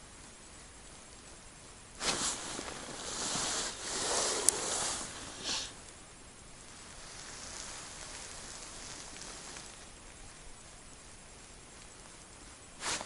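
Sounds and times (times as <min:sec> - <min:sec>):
clothing rustling: 0:02.0 - 0:05.7
brief hiss: 0:02.0 - 0:05.8, 0:12.8 - 0:13.0.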